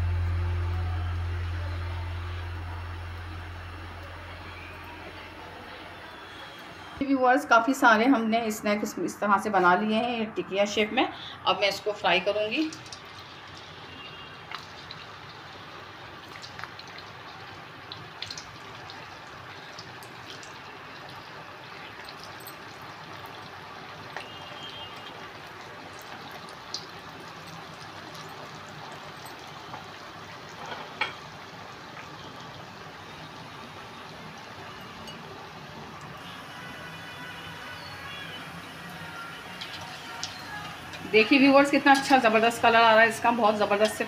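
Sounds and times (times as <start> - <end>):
food deep-frying in oil: 0.0 - 7.8, 11.5 - 44.0
oil crackles and pops: 12.6 - 33.2, 39.4 - 42.3.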